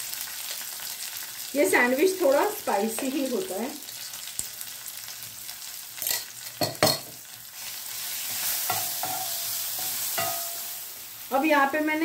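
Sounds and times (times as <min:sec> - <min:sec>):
paste sizzling in oil: 0:00.0 - 0:11.9
spatula scraping frying pan: 0:07.6 - 0:10.9.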